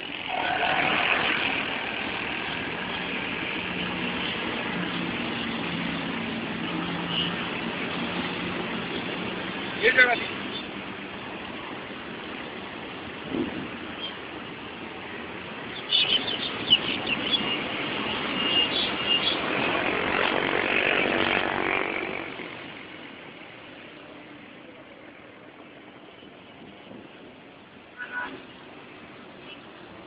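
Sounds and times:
road traffic: 0.0s - 30.0s
vehicle passing close: 0.1s - 9.5s.

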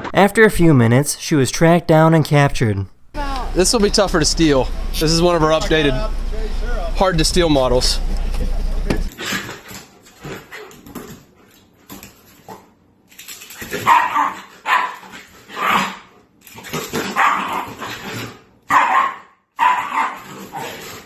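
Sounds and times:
dog barking excitedly: 13.7s - 16.1s, 16.9s - 18.1s, 18.7s - 20.8s.

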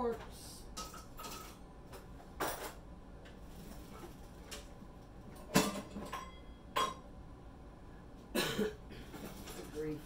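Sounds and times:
kitchen utensils clinking: 0.8s - 1.6s, 5.4s - 7.0s.

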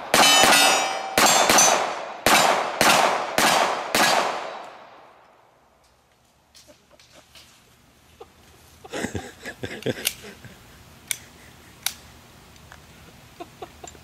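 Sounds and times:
bullets clanging on steel targets: 0.0s - 3.0s
pistol shots echoing: 0.0s - 5.0s.

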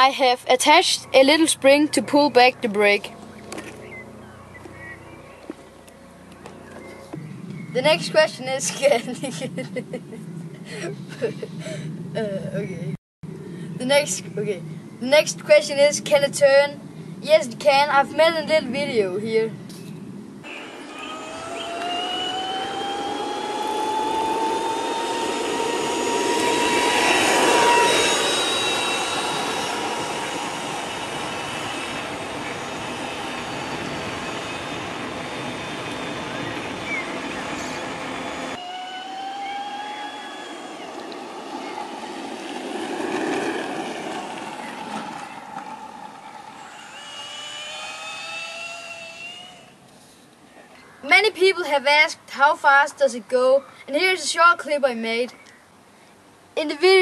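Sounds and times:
wheels rolling on asphalt: 0.8s - 11.4s, 17.6s - 50.2s
drill motor whine: 20.4s - 42.6s, 44.0s - 49.8s
rushing noise: 20.4s - 48.1s.

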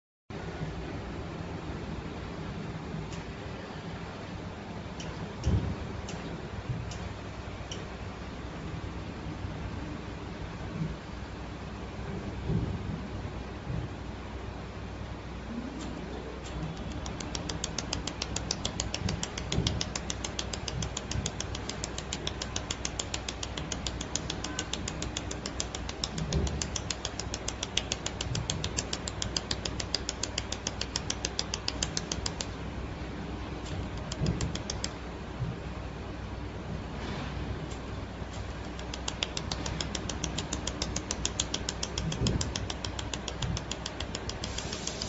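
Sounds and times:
laser welder ticking: 16.4s - 32.6s, 33.6s - 35.0s, 38.3s - 45.0s.

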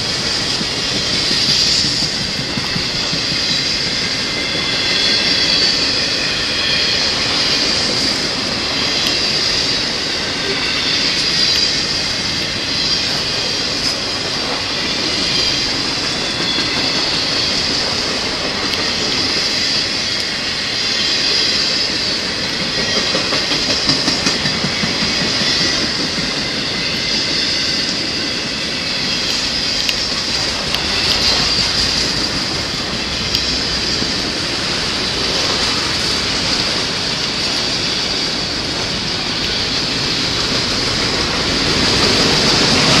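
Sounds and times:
high wheel squeal: 0.0s - 43.0s
train wheels clickety-clack: 0.0s - 43.0s.

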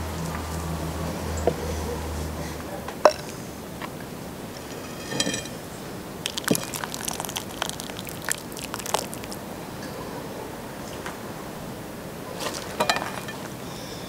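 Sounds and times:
metal ladle clinking on pot: 4.6s - 5.6s
soup being poured: 6.2s - 9.6s.

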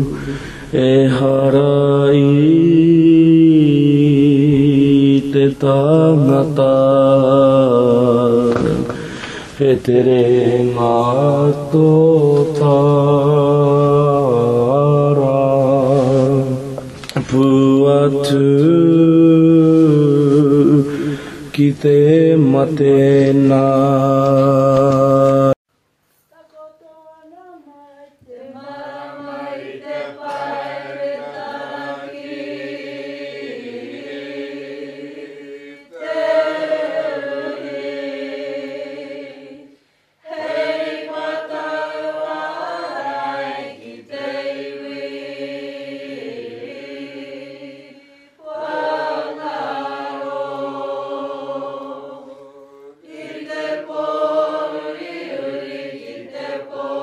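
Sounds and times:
group chanting in unison: 28.3s - 57.0s.

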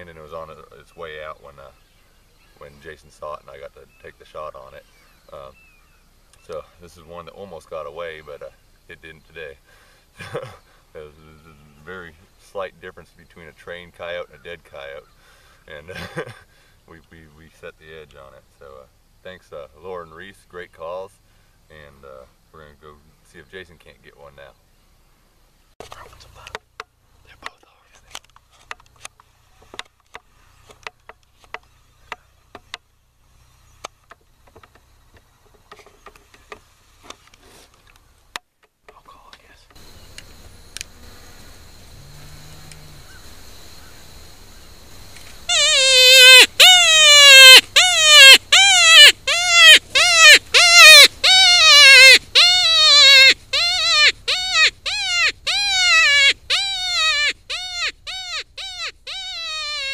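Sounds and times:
low steady hum: 39.8s - 45.5s
bleat-like distress cries: 45.5s - 59.9s.

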